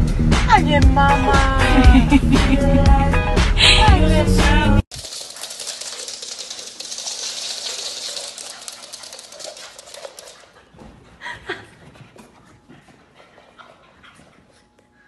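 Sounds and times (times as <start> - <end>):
dog claws skittering on wood floor: 4.9 - 11.0.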